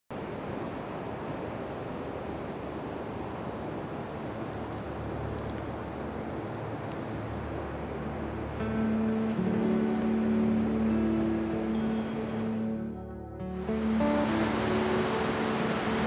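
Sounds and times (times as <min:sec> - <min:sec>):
ocean surf breaking: 0:00.2 - 0:16.0
held musical notes: 0:07.8 - 0:16.0.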